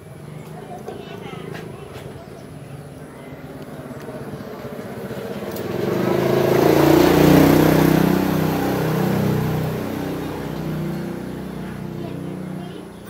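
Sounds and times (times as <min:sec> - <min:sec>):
vehicle engine passing by: 0:00.1 - 0:13.0.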